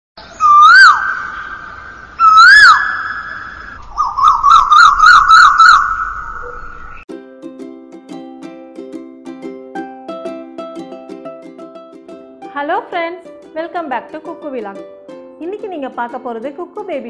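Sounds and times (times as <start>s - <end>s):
swooping whistles: 0.2s - 7.0s
warbling whistle: 0.3s - 7.0s
light ukulele music: 7.1s - 17.0s.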